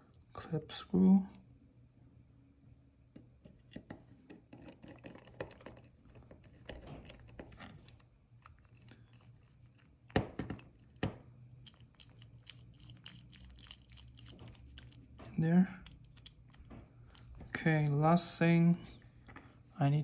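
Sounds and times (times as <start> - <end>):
screwdriver metal clicks and scratching: 3.4 - 17.4.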